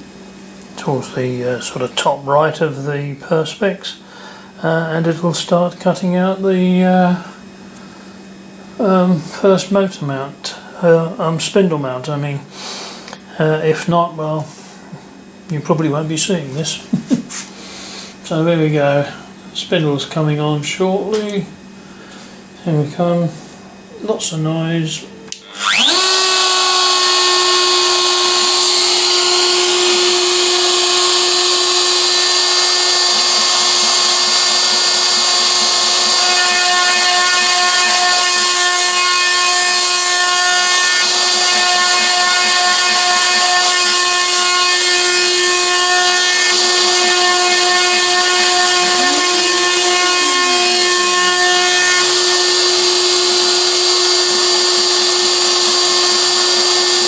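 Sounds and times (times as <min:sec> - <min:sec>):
router spindle high whine: 0:22.6 - 0:57.0.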